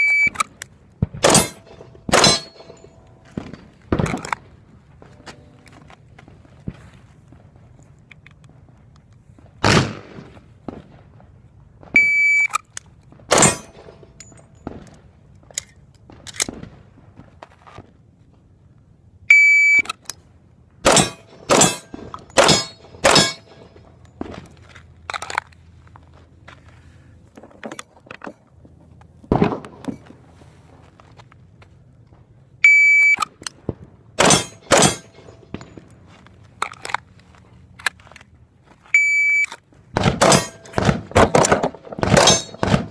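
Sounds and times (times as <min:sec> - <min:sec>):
pistol shots: 0:01.1 - 0:04.3, 0:09.6 - 0:10.3, 0:13.3 - 0:14.0, 0:20.8 - 0:23.8, 0:34.2 - 0:35.7, 0:40.0 - 0:42.9
short electronic beep: 0:39.0 - 0:39.5.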